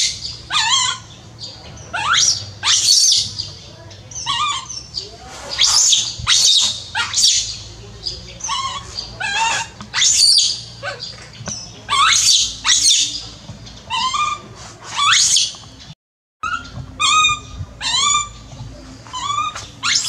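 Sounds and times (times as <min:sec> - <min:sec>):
baby monkey crying: 0:00.0 - 0:01.2, 0:01.9 - 0:03.2, 0:04.2 - 0:04.9, 0:05.6 - 0:07.6, 0:08.4 - 0:11.1, 0:11.9 - 0:13.1, 0:13.9 - 0:15.5, 0:16.4 - 0:18.4, 0:19.1 - 0:20.0.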